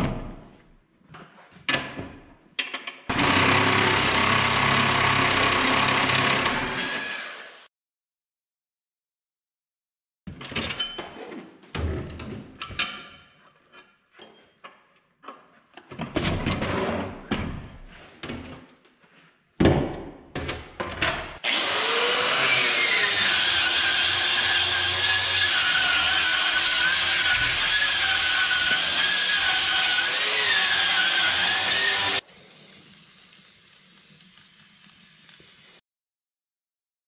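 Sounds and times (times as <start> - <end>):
angle grinder on steel: 3.1 - 7.6, 21.4 - 32.2
power tool whirring: 3.1 - 7.7, 21.4 - 32.2.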